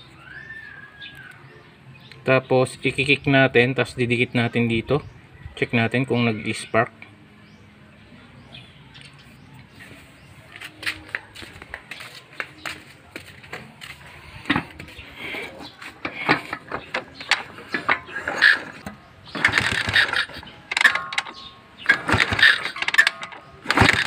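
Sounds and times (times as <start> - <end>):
motorcycle engine turning over: 14.4 - 24.0.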